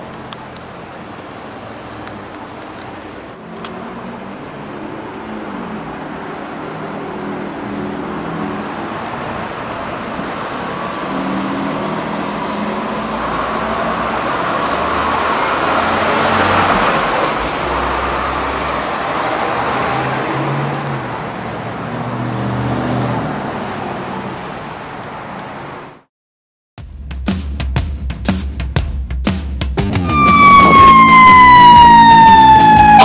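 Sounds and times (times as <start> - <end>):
truck engines passing: 0.0 - 26.1, 29.8 - 33.0
heavy vehicle passing close: 3.1 - 24.8.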